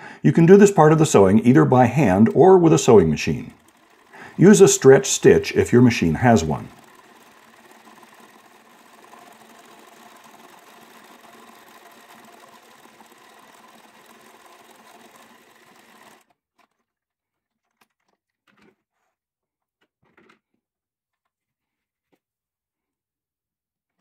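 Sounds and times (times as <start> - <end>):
electric sewing machine stitching: 0.0 - 16.7.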